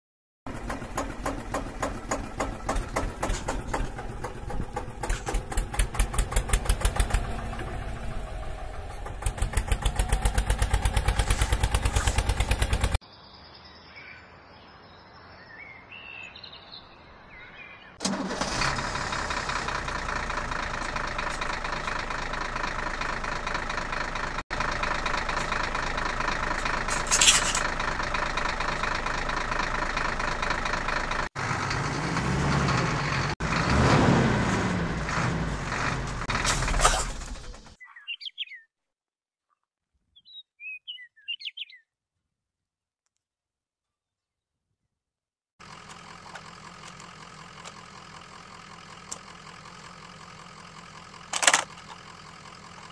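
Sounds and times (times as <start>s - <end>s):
chugging engine: 0.5s - 13.0s, 18.0s - 33.8s, 45.6s - 52.9s
engine running steadily: 0.5s - 13.0s, 18.0s - 37.7s, 45.6s - 52.9s.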